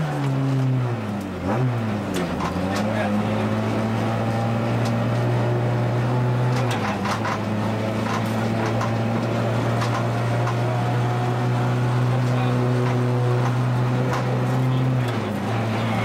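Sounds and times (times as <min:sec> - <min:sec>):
car engine from inside cabin: 0:00.0 - 0:16.0
sharp clicks and knocks: 0:02.0 - 0:03.0, 0:06.4 - 0:10.7, 0:12.2 - 0:15.3.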